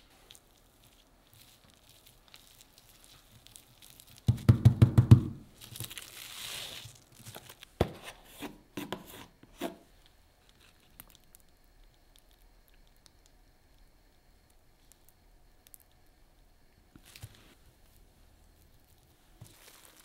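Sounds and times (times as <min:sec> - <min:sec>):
plastic wrap crinkling: 0:00.0 - 0:04.4, 0:05.5 - 0:07.8, 0:17.0 - 0:20.0.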